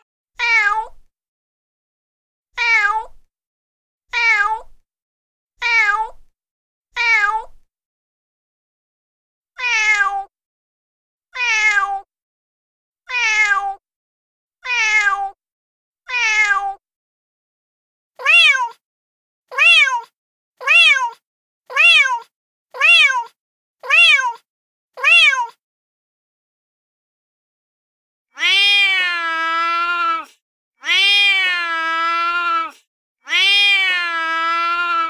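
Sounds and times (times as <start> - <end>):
recorded cat meows: 0.0 - 1.1, 2.6 - 3.3, 4.1 - 4.8, 5.6 - 6.3, 7.0 - 7.6, 9.6 - 10.3, 11.3 - 12.1, 13.1 - 13.8, 14.6 - 15.4, 16.1 - 16.8, 18.2 - 18.8, 19.5 - 25.6, 28.3 - 35.0.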